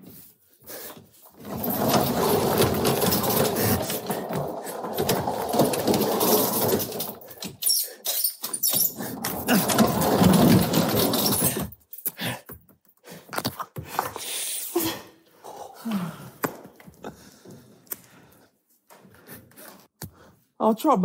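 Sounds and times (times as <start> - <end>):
wooden wheel rumbling and clattering: 1.2 - 7.6, 8.8 - 11.8.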